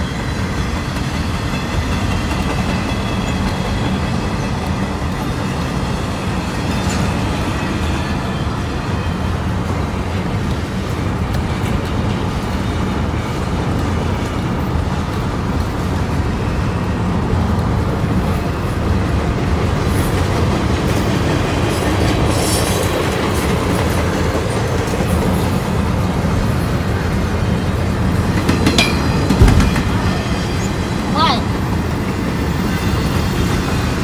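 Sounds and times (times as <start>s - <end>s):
freight train rumbling on rails: 0.0s - 34.0s
heavy thump: 29.3s - 30.0s.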